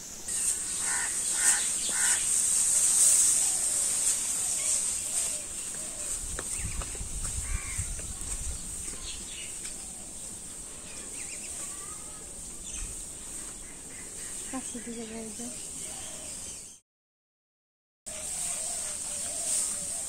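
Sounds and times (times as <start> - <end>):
dry straw rustling: 0.0 - 16.2, 18.1 - 20.0
crows cawing: 0.8 - 2.3, 7.4 - 7.9.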